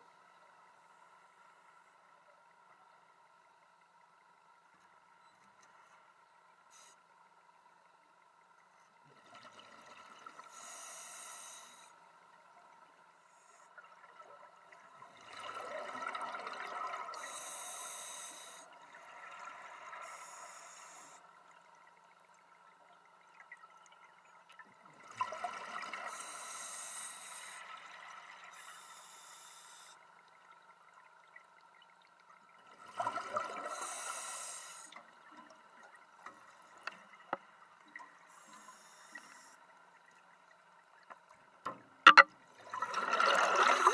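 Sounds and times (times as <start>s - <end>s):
regulator inhale hiss: 10.4s - 12.0s, 17.2s - 18.7s, 20.0s - 21.3s, 26.1s - 27.7s, 28.5s - 30.0s, 33.7s - 35.0s, 38.3s - 39.6s.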